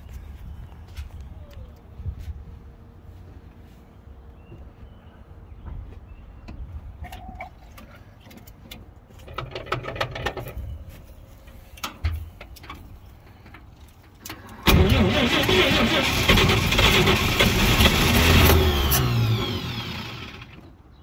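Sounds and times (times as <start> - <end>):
starter clicks and rattle: 8.2 - 10.6
truck engine starting and running: 8.3 - 21.0.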